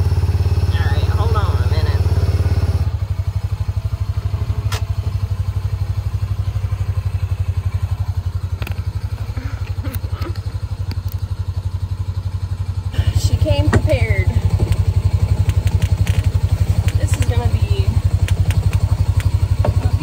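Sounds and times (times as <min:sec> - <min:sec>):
utility vehicle engine running: 0:00.0 - 0:20.0
sharp knocks and clicks: 0:14.5 - 0:20.0.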